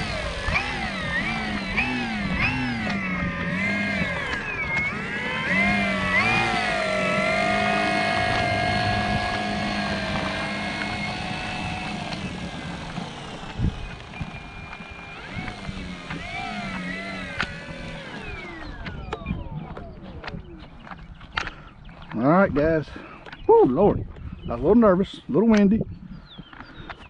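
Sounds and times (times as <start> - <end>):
model plane motor whine: 0.0 - 21.6.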